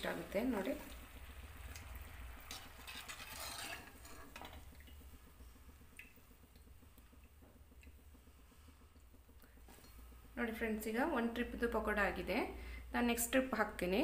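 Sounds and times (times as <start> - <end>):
food frying in hot oil: 0.0 - 14.0
steel skimmer clinking on pan: 2.5 - 4.6.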